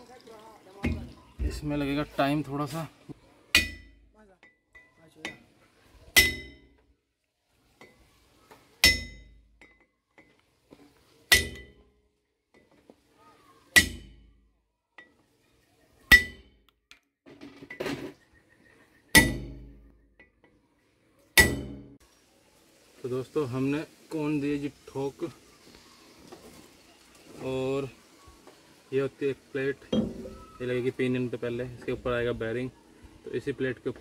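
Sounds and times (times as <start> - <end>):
hammer striking metal: 3.6 - 4.0, 6.2 - 6.6, 8.8 - 9.4, 11.3 - 11.8, 13.8 - 14.2, 19.2 - 19.8, 21.4 - 22.0, 30.0 - 30.4.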